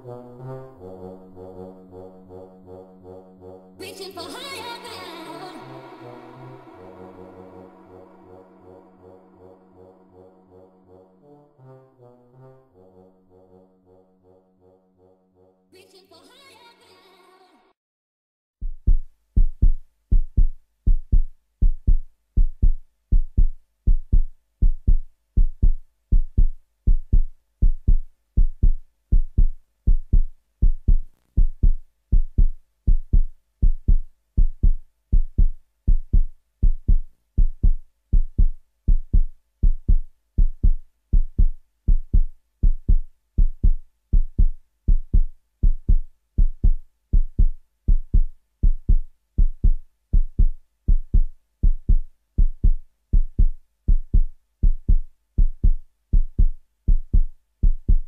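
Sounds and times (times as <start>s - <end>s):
heartbeat double thump: 18.6s - 58.0s.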